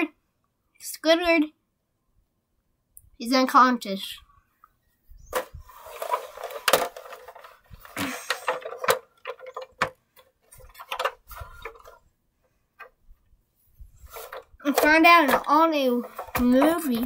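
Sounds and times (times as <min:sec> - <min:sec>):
toys clicking and knocking: 0:05.3 - 0:12.0, 0:14.2 - 0:17.0
rustling of plush toys: 0:05.4 - 0:17.0.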